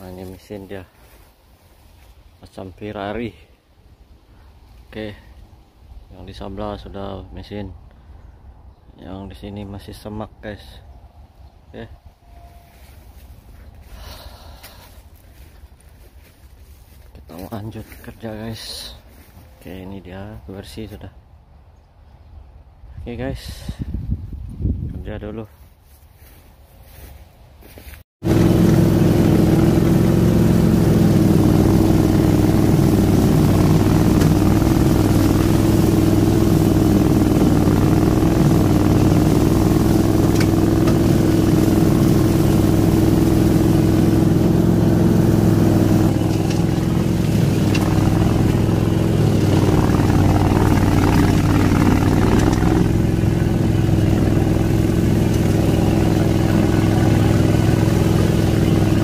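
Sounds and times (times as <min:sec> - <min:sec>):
ride-on mower engine running: 0:28.2 - 0:59.0.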